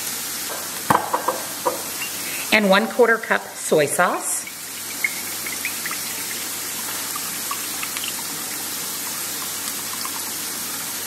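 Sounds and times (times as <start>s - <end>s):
chicken sizzling in a skillet: 0.0s - 11.0s
sauce trickling into metal cup: 4.2s - 11.0s.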